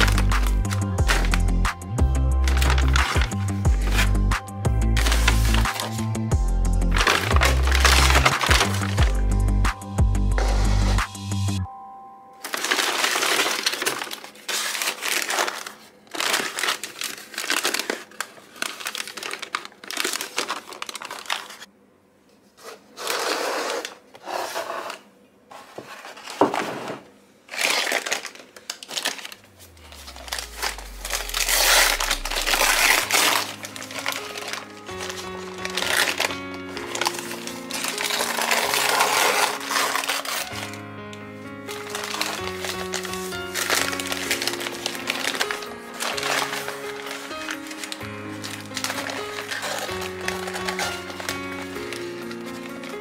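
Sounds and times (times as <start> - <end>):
paper bag rustling and crinkling: 0.0 - 1.6, 2.3 - 9.3, 10.4 - 11.0, 12.4 - 21.7, 22.6 - 53.0.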